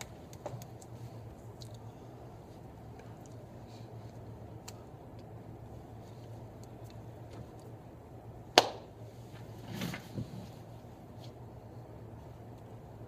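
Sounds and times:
low electrical hum: 0:00.0 - 0:13.0
sharp hand slap: 0:08.6 - 0:08.9.

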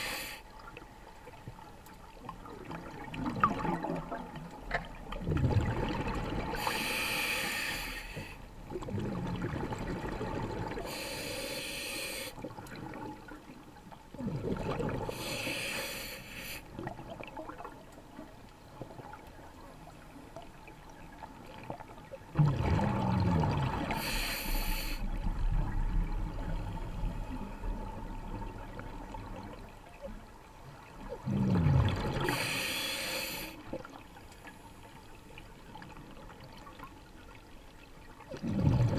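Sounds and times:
exhaled bubbles rushing: 0:02.5 - 0:06.6, 0:08.7 - 0:10.9, 0:14.2 - 0:15.2, 0:22.3 - 0:24.2, 0:25.0 - 0:29.7, 0:31.2 - 0:32.4, 0:38.3 - 0:38.9
regulator inhalation: 0:06.6 - 0:08.4, 0:10.9 - 0:12.4, 0:15.2 - 0:16.7, 0:24.0 - 0:25.2, 0:32.3 - 0:33.6.

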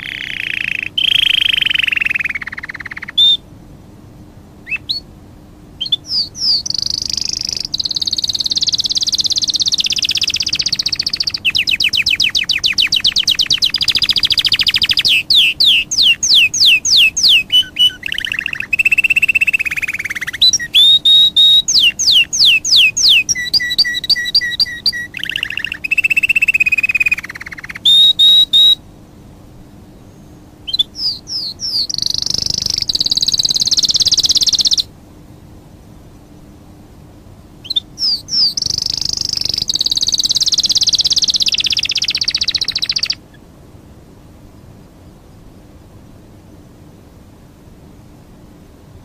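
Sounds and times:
songbird singing: 0:00.0 - 0:49.0.

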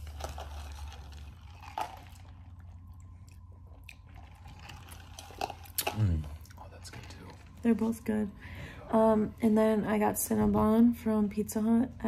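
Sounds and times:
low room hum: 0:00.0 - 0:12.0
mouth sounds of eating: 0:01.4 - 0:07.3.

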